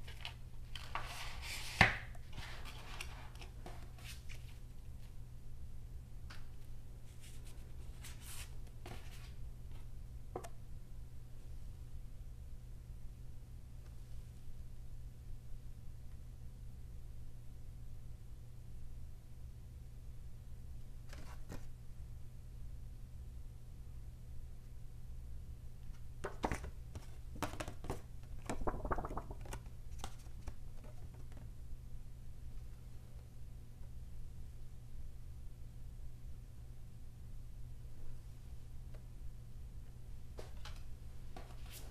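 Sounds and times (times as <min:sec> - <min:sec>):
paper cards rustling and tapping: 0:00.0 - 0:04.6, 0:26.2 - 0:31.5.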